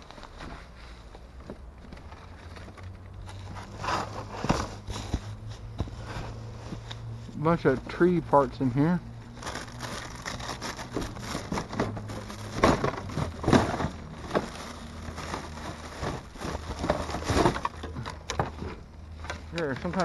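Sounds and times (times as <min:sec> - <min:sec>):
plastic bags rustling: 0:00.0 - 0:20.0
plastic and metal items knocking: 0:09.8 - 0:20.0.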